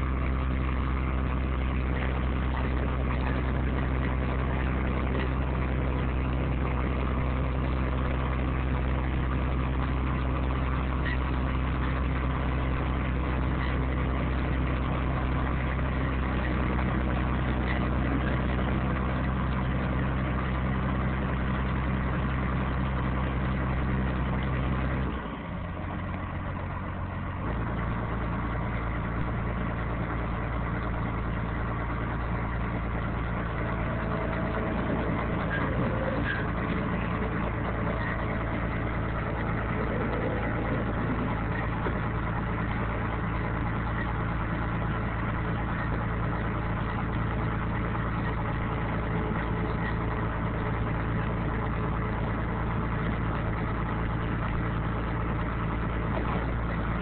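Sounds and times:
bulldozer diesel engine running: 0.0 - 57.0.

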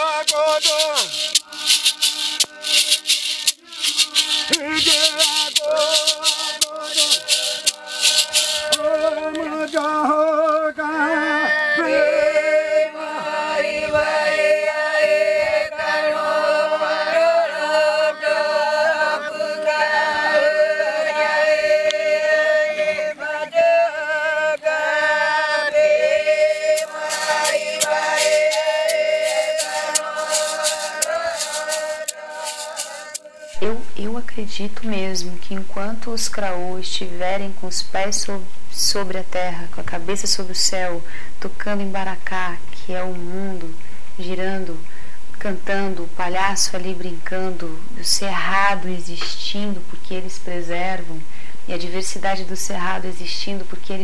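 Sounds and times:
gourd rattle shaken: 0.0 - 10.0, 26.6 - 33.8
high voices singing together: 0.0 - 33.9.

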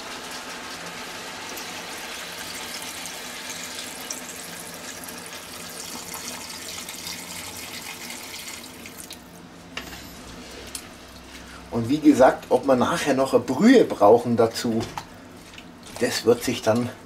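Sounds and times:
water pouring into a pot: 0.1 - 9.2.

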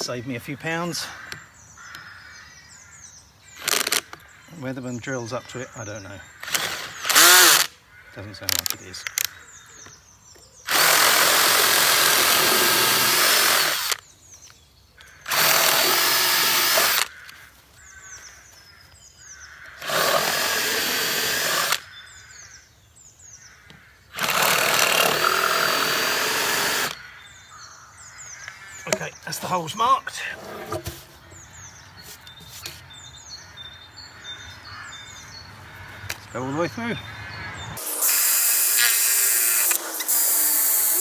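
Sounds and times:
birds chirping: 0.0 - 41.0
cordless drill boring wood: 3.6 - 4.1, 6.4 - 7.7, 10.7 - 14.0, 15.2 - 17.2, 19.8 - 21.9, 24.2 - 27.0, 37.8 - 41.0.

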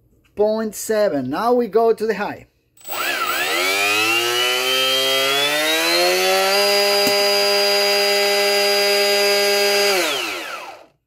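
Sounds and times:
electric motor whine: 2.8 - 10.9.

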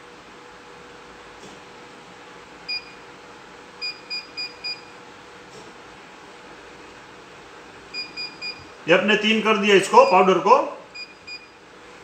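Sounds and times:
vending machine keypad beeps: 2.7 - 3.0, 3.8 - 4.9, 7.9 - 8.7, 10.0 - 10.3, 10.9 - 11.6.

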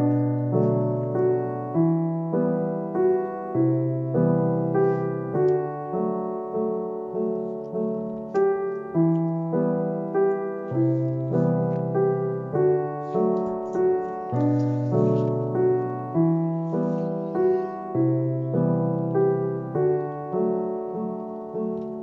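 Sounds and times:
slow gentle piano music: 0.0 - 22.0.

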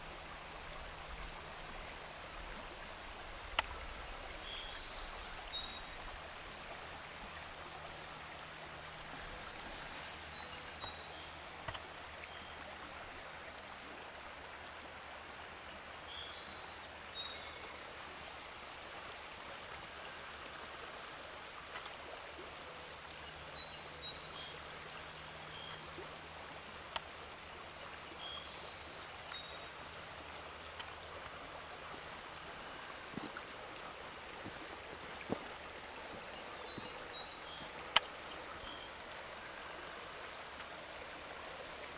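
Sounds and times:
faint low hum: 0.0 - 41.9
river water rushing: 17.4 - 41.9.

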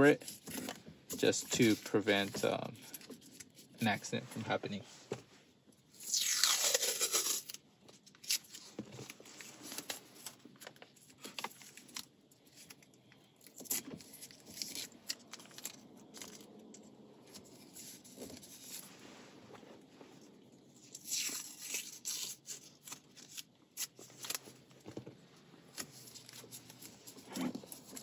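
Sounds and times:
tape crinkling and rubbing: 0.0 - 4.6, 5.8 - 28.0
adhesive tape ripping: 6.0 - 7.6, 13.4 - 16.4, 20.8 - 24.4.

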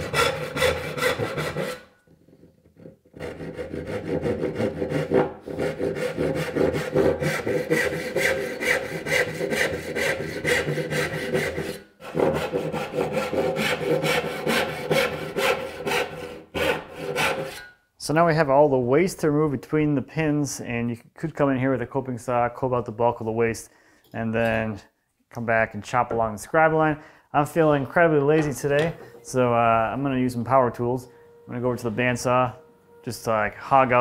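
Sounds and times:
hand saw cutting wood: 0.0 - 2.0, 2.7 - 17.7.

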